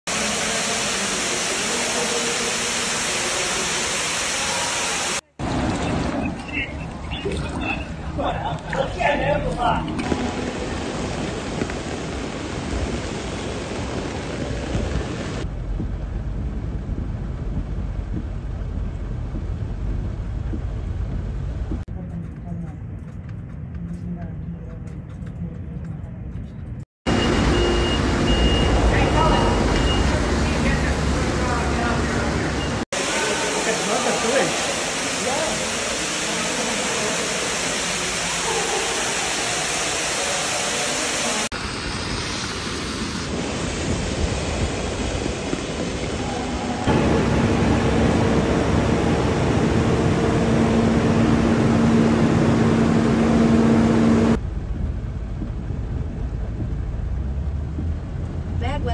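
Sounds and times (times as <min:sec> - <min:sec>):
water rushing down stairs: 0:00.1 - 0:16.2, 0:27.2 - 0:54.4
torrential rain pouring: 0:00.1 - 0:21.8, 0:27.1 - 0:58.9
continuous low rumble: 0:05.4 - 0:32.8, 0:44.6 - 0:58.9.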